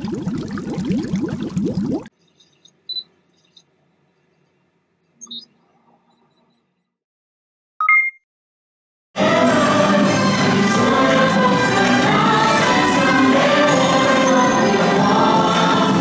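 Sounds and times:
two-tone electronic blip: 0:07.8 - 0:08.2
music: 0:09.2 - 0:16.0.

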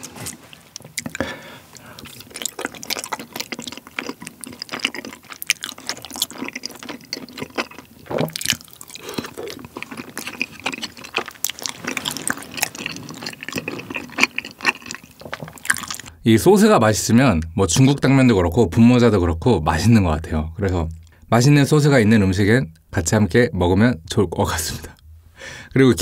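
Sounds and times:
wet mouth chewing sounds: 0:00.0 - 0:16.1.

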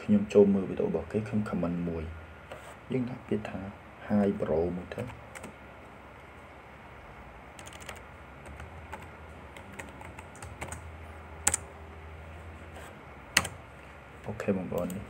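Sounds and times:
faint low hum: 0:00.0 - 0:15.0
keyboard keys clicking: 0:07.6 - 0:10.8, 0:11.4 - 0:11.6.

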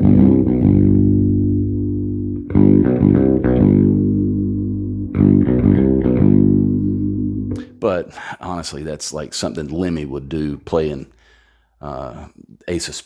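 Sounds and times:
overdriven bass guitar chords: 0:00.0 - 0:07.9.

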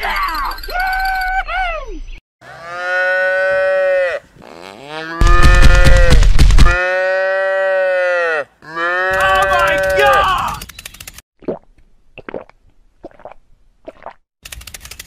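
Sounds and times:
cow mooing: 0:02.4 - 0:06.1, 0:06.8 - 0:10.2.

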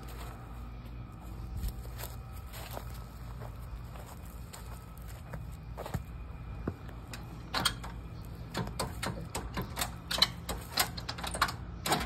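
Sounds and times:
footsteps crunching on dry leaves: 0:00.0 - 0:07.4.

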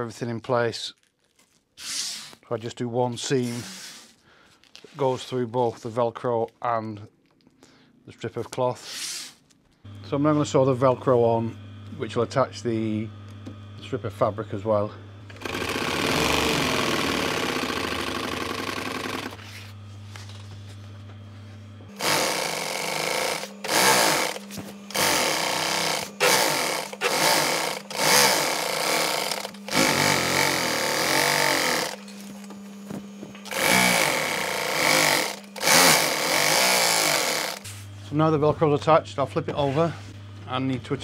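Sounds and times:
low motor hum: 0:09.9 - 0:41.0
sewing machine stitching: 0:15.3 - 0:19.6, 0:21.9 - 0:32.5, 0:33.4 - 0:37.7.

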